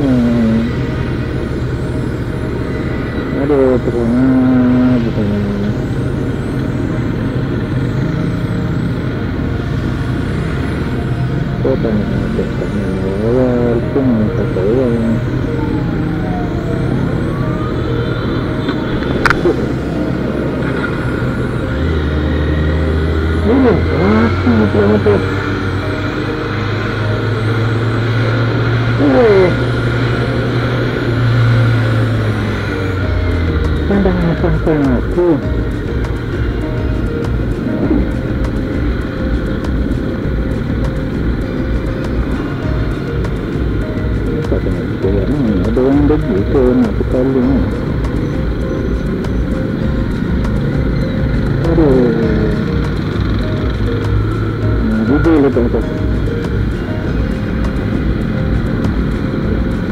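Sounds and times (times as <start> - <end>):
motorcycle engine running at low revs: 0.0 - 59.9
wind and road noise hiss: 17.0 - 59.9.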